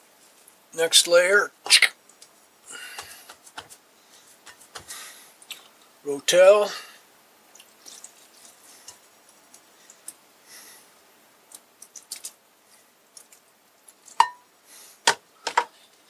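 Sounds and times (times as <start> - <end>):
fingers handling wet tomatoes: 1.7 - 5.8, 7.5 - 10.2, 11.4 - 12.4.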